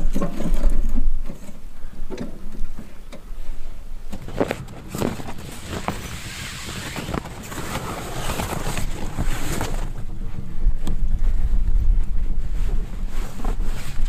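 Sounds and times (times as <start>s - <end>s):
wind buffeting microphone: 3.9s - 14.0s
strong wind gusting: 4.2s - 14.0s.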